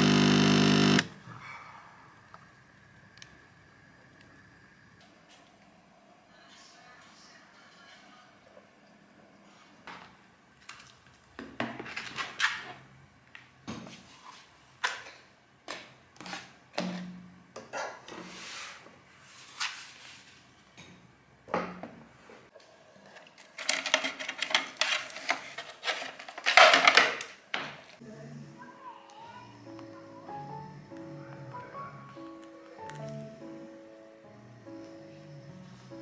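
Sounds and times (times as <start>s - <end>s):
rustling and clatter: 23.0s - 27.2s.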